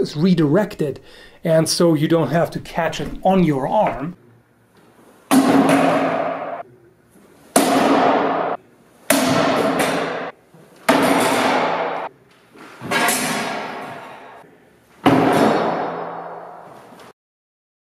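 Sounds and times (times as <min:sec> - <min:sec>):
sword striking wooden shield: 0:05.3 - 0:06.6, 0:07.6 - 0:10.3, 0:10.9 - 0:12.1, 0:12.9 - 0:13.9, 0:15.0 - 0:16.4.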